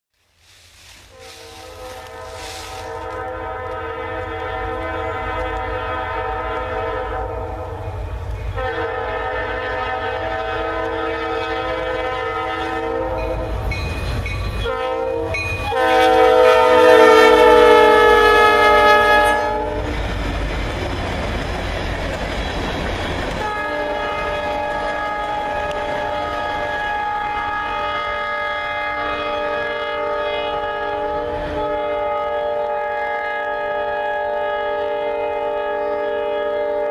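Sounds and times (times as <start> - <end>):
train engine and wheels rumbling: 0.2 - 36.9
train horn blasts: 1.0 - 20.0, 23.3 - 36.9.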